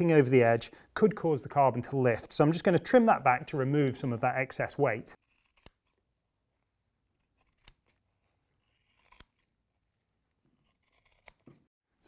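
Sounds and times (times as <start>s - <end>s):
scissors snipping cloth: 5.2s - 6.0s, 7.1s - 9.5s, 10.6s - 11.7s.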